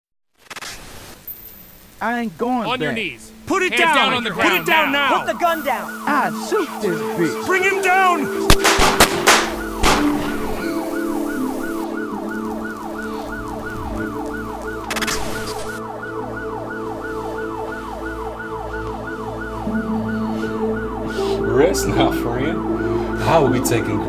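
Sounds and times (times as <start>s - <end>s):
police siren yelping: 2.8s - 24.0s
gunshots: 8.5s - 10.6s.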